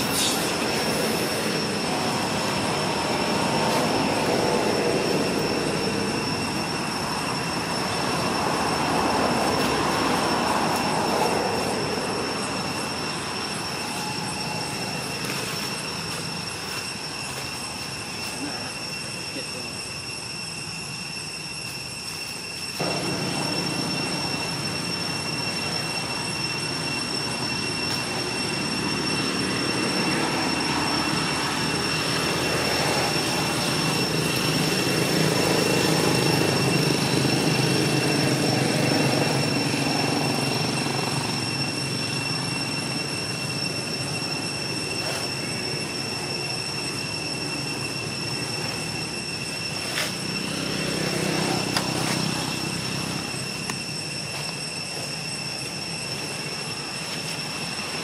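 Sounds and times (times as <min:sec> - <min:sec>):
high-pitched drone: 0:00.0 - 0:58.0.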